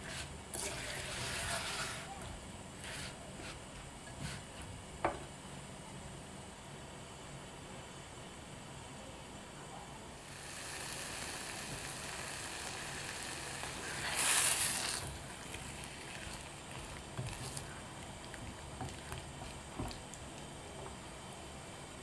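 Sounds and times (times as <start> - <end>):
fruit sizzling in a saucepan: 0.0 - 2.1, 10.2 - 20.6
spatula stirring fruit: 0.0 - 2.1, 10.2 - 21.0.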